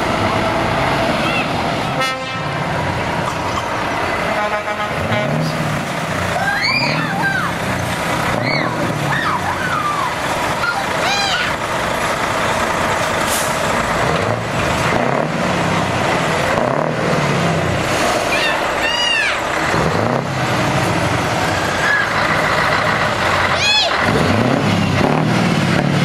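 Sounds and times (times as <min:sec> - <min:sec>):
truck engines revving: 0:00.0 - 0:26.0
air brake hiss: 0:13.2 - 0:13.6.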